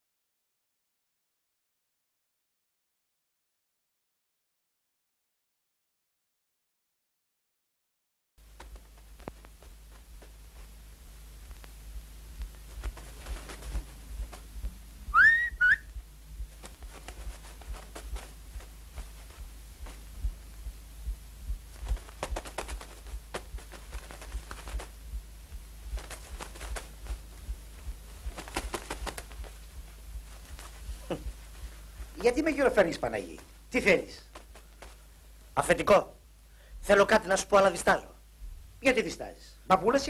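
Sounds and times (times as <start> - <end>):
feather duster brushing and tapping: 8.5 - 11.8, 12.4 - 14.8, 15.9 - 20.8, 21.5 - 35.1
short rising whistle: 15.1 - 15.9.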